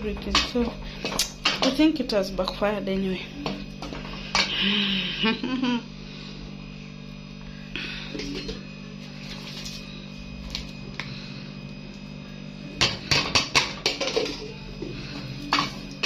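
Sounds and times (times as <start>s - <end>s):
utensils knocking on metal pot: 0.0s - 1.8s, 12.8s - 14.5s
low steady hum: 0.0s - 16.0s.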